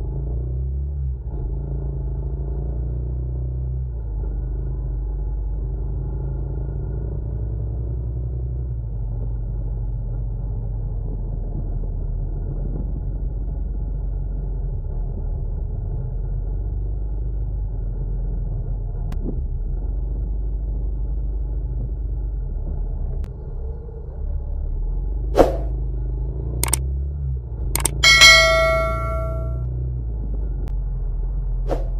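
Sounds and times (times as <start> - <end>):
short clicks: 27.8 - 29.4.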